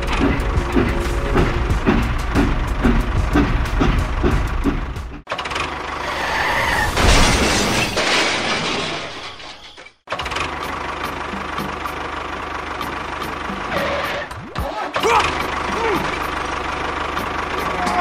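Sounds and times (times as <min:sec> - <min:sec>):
vehicle engine running: 0:00.0 - 0:06.1, 0:10.1 - 0:18.0
crashing shattering noise: 0:06.6 - 0:10.0.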